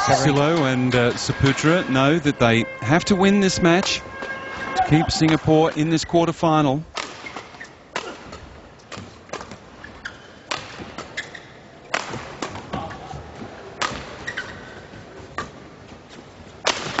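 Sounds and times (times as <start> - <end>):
badminton rackets hitting shuttlecock: 6.9 - 13.1, 13.8 - 14.7, 16.6 - 17.0
shoe squeaks on court floor: 9.8 - 11.7, 14.2 - 14.9.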